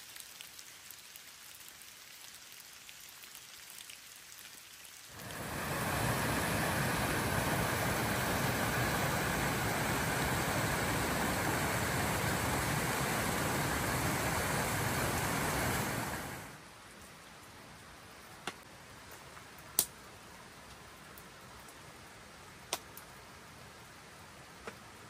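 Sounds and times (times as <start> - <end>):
raindrops tapping on tarp: 0.0 - 5.5, 22.7 - 23.1.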